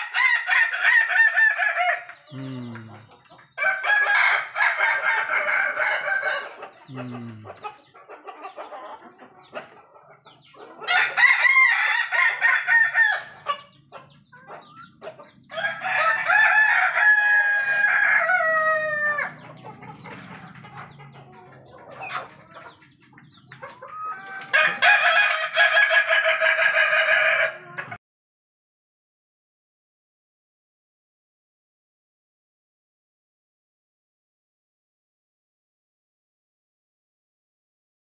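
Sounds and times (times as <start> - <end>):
roosters crowing: 0.0 - 8.8, 10.7 - 13.9, 14.6 - 22.8, 23.8 - 28.0.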